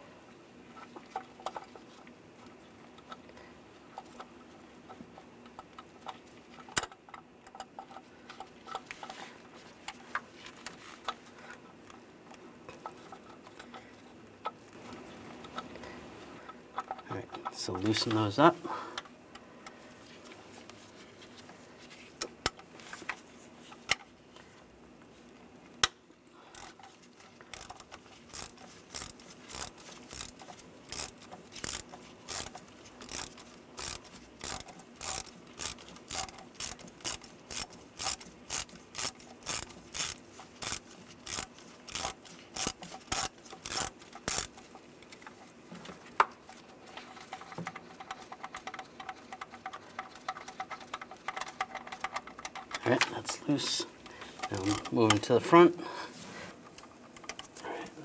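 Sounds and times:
hand ratchet clicking: 26.5 - 44.7, 54.4 - 55.2.

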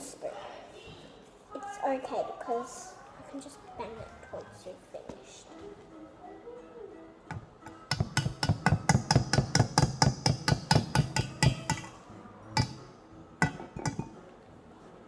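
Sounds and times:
whisk knocking on metal bowl: 7.9 - 11.9, 13.4 - 14.1.

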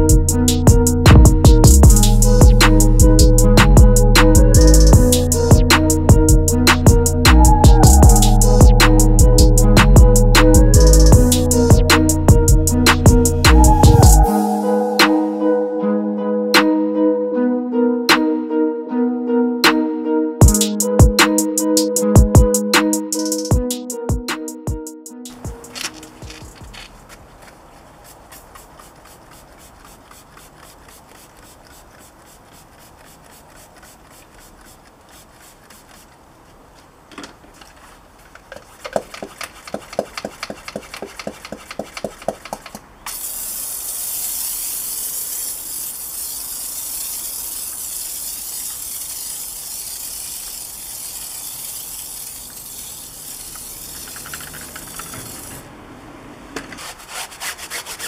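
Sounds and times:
sprayer hissing: 25.3 - 36.1, 38.8 - 55.7
foam sprayer being pumped: 25.3 - 36.3, 37.6 - 55.7.

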